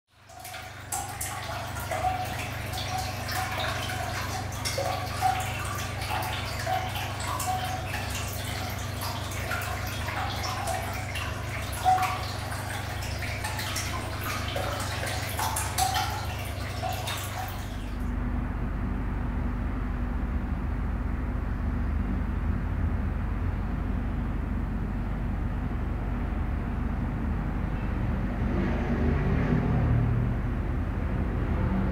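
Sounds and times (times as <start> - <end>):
water dripping: 0.1 - 18.1
low steady hum: 0.1 - 28.6
low rumble of traffic: 0.1 - 31.9.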